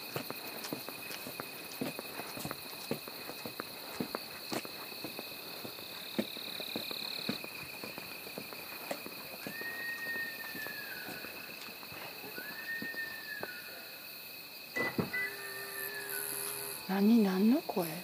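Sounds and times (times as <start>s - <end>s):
crunching footsteps: 0.0s - 14.7s
insect trilling: 0.0s - 18.0s
wild animal scream-like call: 9.4s - 11.5s, 12.2s - 14.0s, 15.0s - 16.9s.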